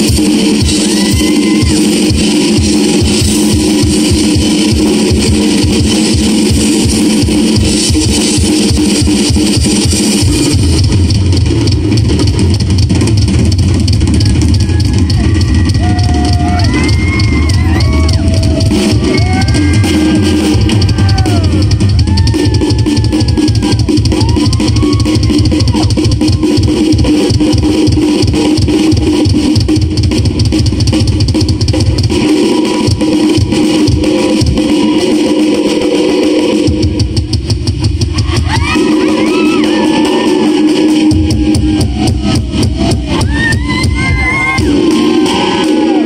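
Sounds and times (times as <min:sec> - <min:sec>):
drum kit beat: 0:00.0 - 0:46.0.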